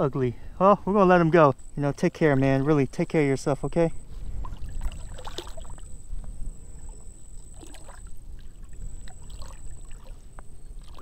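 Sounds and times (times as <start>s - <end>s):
fish splashing water: 4.4s - 6.0s, 6.8s - 11.0s.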